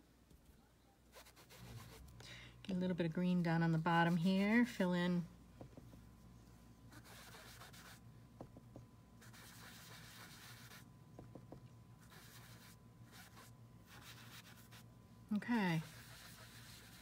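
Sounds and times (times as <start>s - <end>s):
ink applicator rubbing on cardstock: 7.0s - 8.0s, 9.2s - 10.9s, 12.0s - 14.8s, 15.7s - 17.0s.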